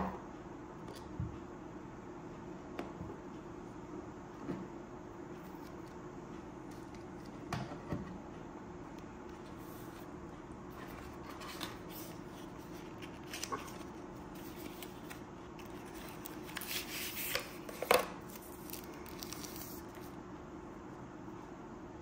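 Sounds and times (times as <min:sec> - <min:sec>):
steady low hum: 0:00.0 - 0:22.0
paper and cardboard rustling: 0:10.7 - 0:20.1.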